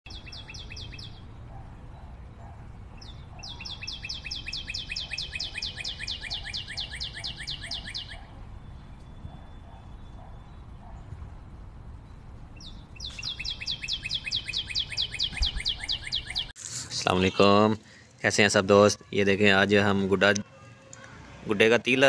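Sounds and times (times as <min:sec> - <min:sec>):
bird singing descending notes: 0:00.1 - 0:01.4, 0:03.0 - 0:16.5.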